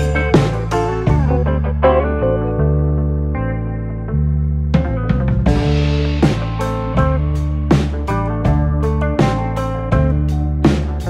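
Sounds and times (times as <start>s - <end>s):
drum hits: 0.0s - 1.6s, 4.8s - 11.0s
low bass: 0.0s - 11.0s.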